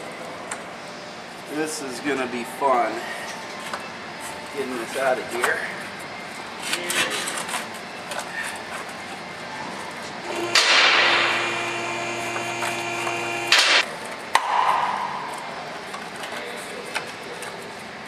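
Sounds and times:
steady machine hum: 10.2s - 13.9s.

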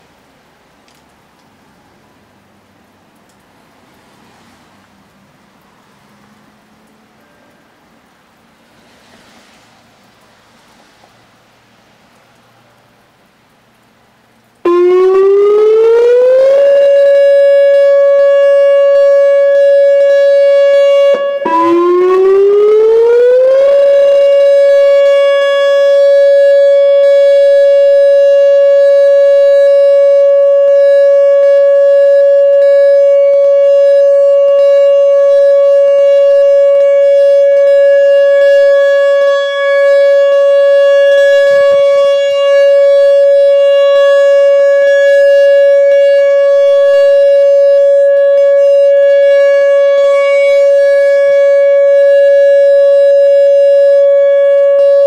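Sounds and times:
warning siren tone: 14.7s - 55.0s.

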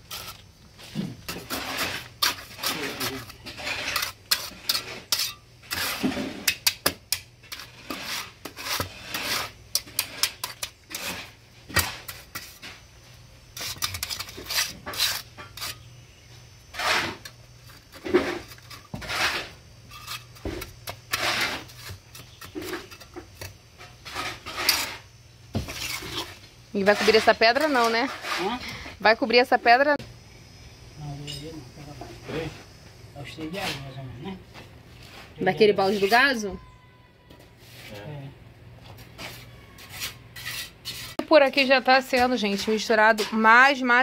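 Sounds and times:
trowel scraping wet concrete: 0.0s - 12.8s, 13.5s - 15.9s, 16.7s - 28.8s, 38.9s - 44.0s.

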